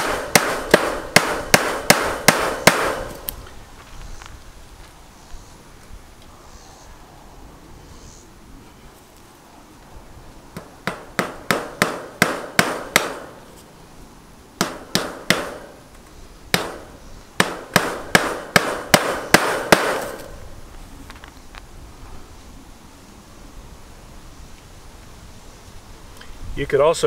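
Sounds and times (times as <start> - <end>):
hammer striking staples into wood: 0.0 - 3.2, 10.6 - 13.4, 14.6 - 15.8, 16.5 - 20.3.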